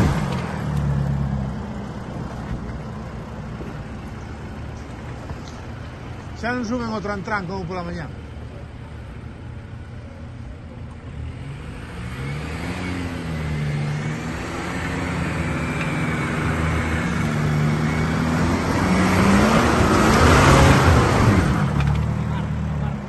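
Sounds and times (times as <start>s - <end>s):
off-road vehicle engine revving: 0.0s - 10.0s, 10.6s - 23.0s.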